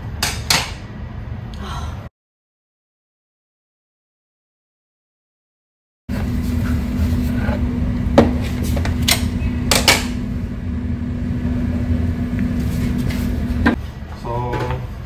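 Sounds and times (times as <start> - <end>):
steady low hum: 6.1 - 14.2.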